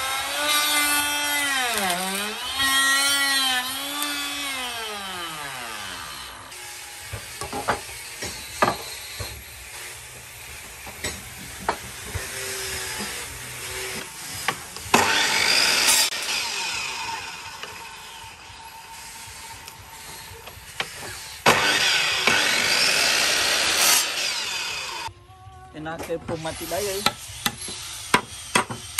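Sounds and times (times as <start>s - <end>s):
miter saw rush: 13.9s - 20.4s, 21.1s - 25.1s
electric router winding down: 21.5s - 25.1s.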